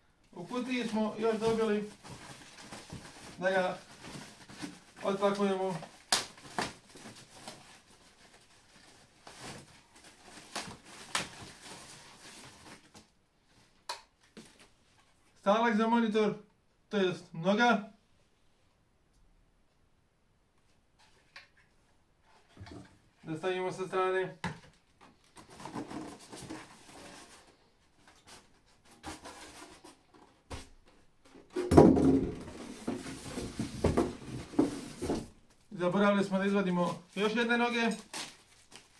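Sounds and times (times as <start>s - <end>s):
plastic wrapping crinkling: 36.9s - 38.9s.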